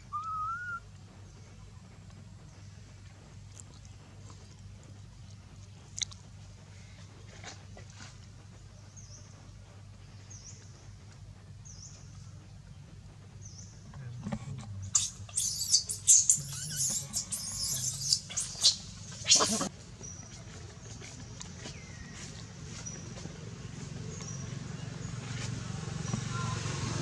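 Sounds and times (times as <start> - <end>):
baby monkey screaming: 14.9 - 19.7.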